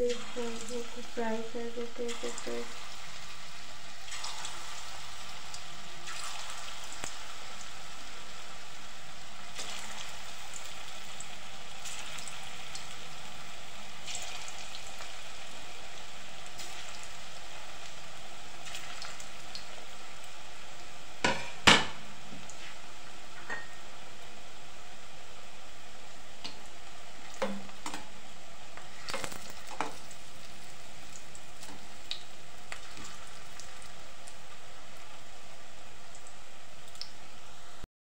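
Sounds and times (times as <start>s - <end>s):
oil sizzling in a wok: 0.0s - 37.8s.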